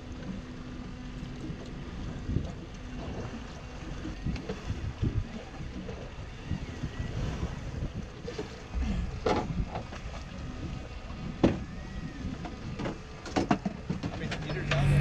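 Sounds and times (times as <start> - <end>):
water against boat hull: 0.0 - 15.0
wind buffeting microphone: 3.9 - 13.1.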